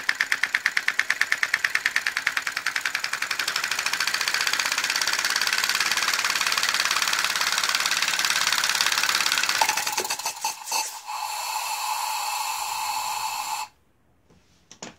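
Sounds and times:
wooden linkage rattling: 0:00.0 - 0:09.6
air engine puffing: 0:09.6 - 0:13.8
compressed air whistling: 0:09.6 - 0:13.8.

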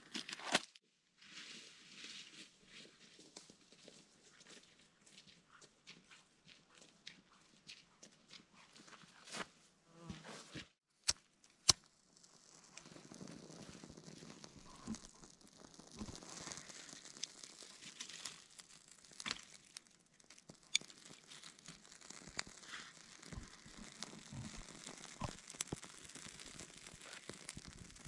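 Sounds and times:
tinder burning with faint crackles: 0:01.3 - 0:06.0, 0:10.7 - 0:28.0
dry twigs rustling and clicking: 0:11.0 - 0:28.0.

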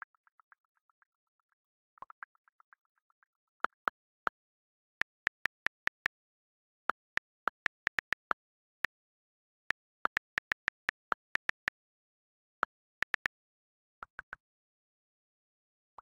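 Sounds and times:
on-screen keyboard clicks: 0:04.8 - 0:06.3, 0:06.9 - 0:08.4, 0:09.7 - 0:11.8, 0:12.6 - 0:13.4.

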